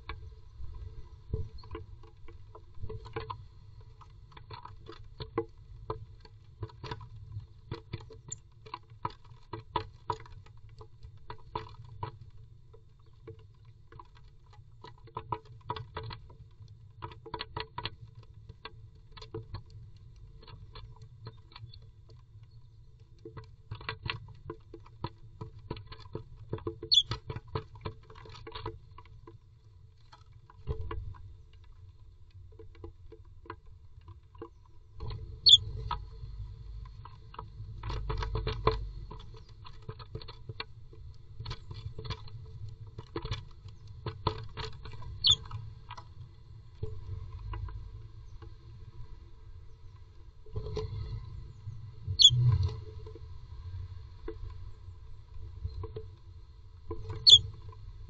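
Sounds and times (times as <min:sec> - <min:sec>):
short high bird chirps: 0:52.2 - 0:52.4.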